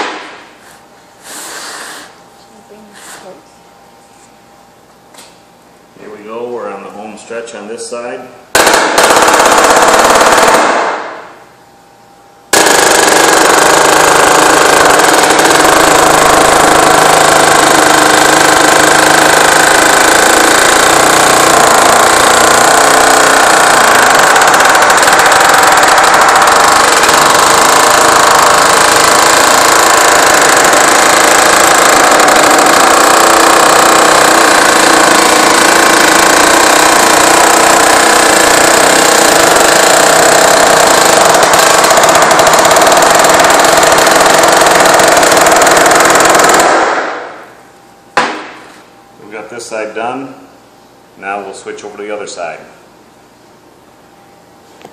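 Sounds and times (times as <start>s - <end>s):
pneumatic air hammer hammering: 0.0s - 0.5s, 12.5s - 47.4s.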